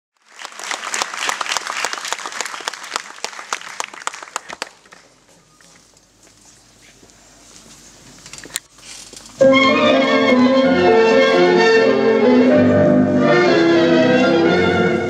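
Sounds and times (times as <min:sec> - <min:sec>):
audience applauding: 0:00.1 - 0:05.2.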